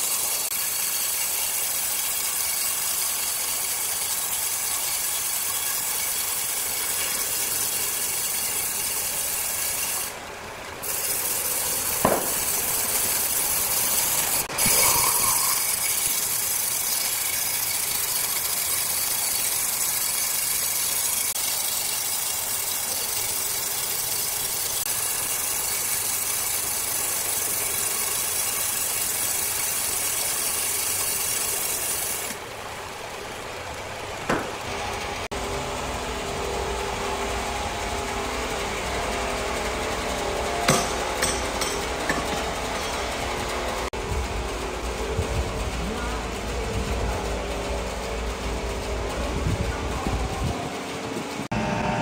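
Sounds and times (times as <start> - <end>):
circular saw hissing: 0.0 - 50.4
sharp knocks: 12.0 - 12.6, 34.2 - 34.6
low machine hum: 32.4 - 52.0.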